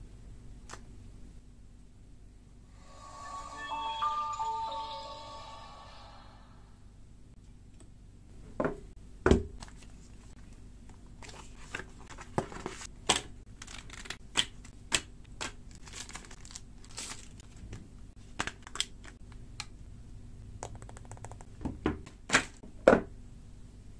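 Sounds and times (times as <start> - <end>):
paper and plastic crinkling: 11.2 - 12.9, 13.5 - 14.2, 15.4 - 19.2.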